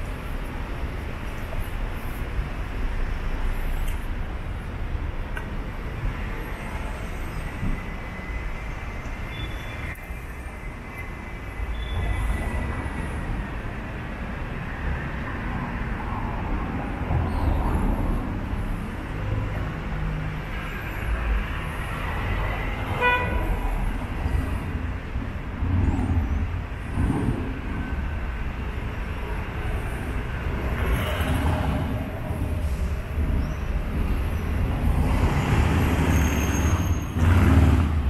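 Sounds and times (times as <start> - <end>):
city street traffic rumbling: 0.0 - 38.0
vehicle horn toot: 23.0 - 23.4.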